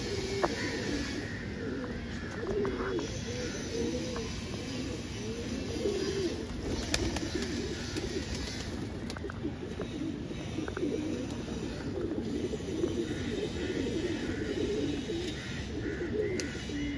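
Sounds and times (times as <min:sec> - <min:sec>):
pigeons cooing: 0:00.0 - 0:16.9.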